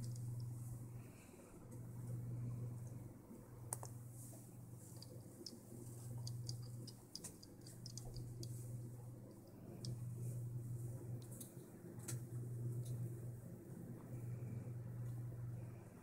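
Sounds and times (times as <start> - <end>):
light clicks and ticks: 0.0 - 0.6, 4.9 - 8.7, 9.3 - 10.1
steady low hum: 0.0 - 16.0.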